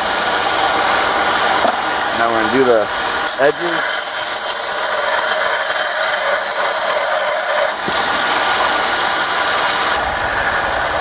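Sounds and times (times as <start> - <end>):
belt grinder running: 0.0 - 11.0
steel file grinding on belt: 3.2 - 7.8.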